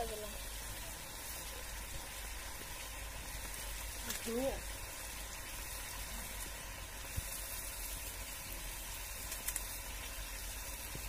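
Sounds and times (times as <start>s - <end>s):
curry sizzling in a pan: 0.0s - 11.0s
small pops: 9.2s - 9.8s.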